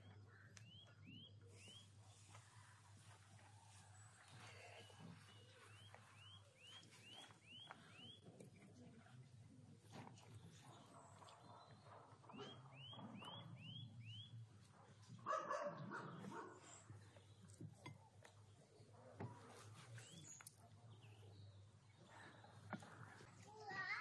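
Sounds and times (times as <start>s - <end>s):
bird chirping: 0.0s - 2.4s, 4.0s - 8.4s, 10.3s - 14.6s.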